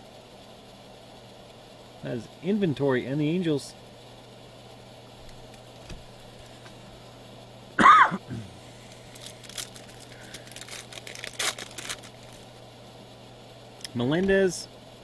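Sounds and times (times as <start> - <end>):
faint steady hum: 0.0 - 15.0
foil wrapper crinkling: 8.8 - 12.6.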